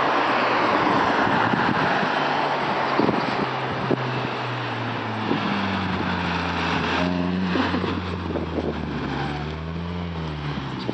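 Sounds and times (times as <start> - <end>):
car exhaust at steady revs: 3.7 - 10.9.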